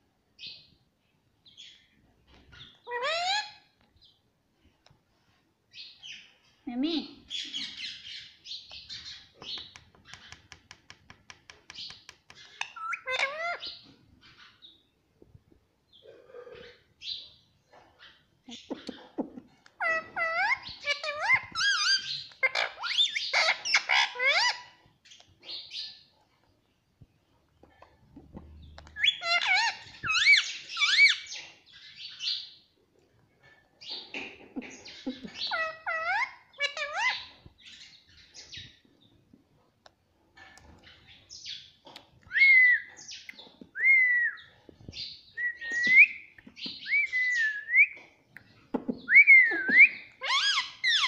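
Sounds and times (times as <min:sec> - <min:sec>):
parakeet chattering and squawking: 0:02.5 - 0:03.7, 0:08.9 - 0:14.5, 0:18.0 - 0:24.9, 0:28.8 - 0:32.2, 0:34.0 - 0:37.9, 0:49.0 - 0:51.0
parakeet calling: 0:12.4 - 0:13.8, 0:29.0 - 0:31.4, 0:34.8 - 0:37.3, 0:49.3 - 0:51.0.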